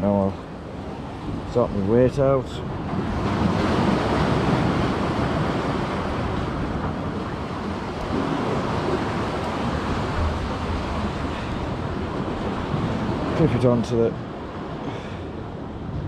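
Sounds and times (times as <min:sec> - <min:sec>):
sea surf washing against rocks: 0:00.0 - 0:16.0
wind on microphone: 0:00.0 - 0:16.0.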